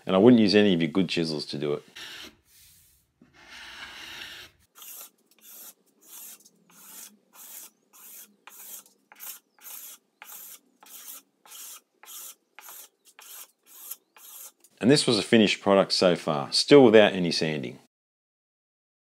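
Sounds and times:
chisel scraping hardwood: 3.3s - 14.6s.

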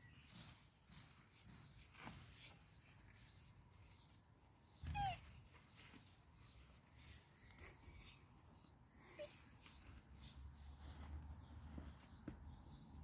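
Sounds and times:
tortoise squeak: 4.8s - 5.4s.

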